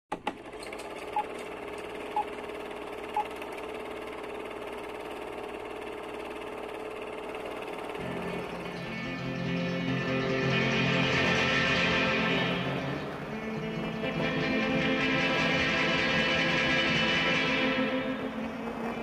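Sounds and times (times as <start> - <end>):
film projector whirring rattle: 0.1 - 9.5, 17.9 - 19.0
music: 8.0 - 19.0.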